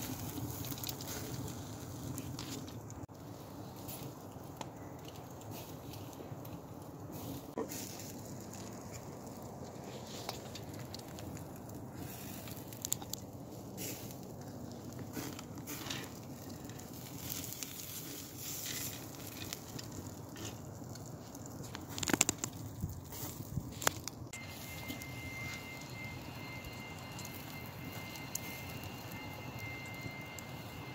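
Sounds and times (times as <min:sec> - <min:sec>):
wood fire crackling: 0:00.0 - 0:30.9
sharp fire pops: 0:15.1 - 0:24.2.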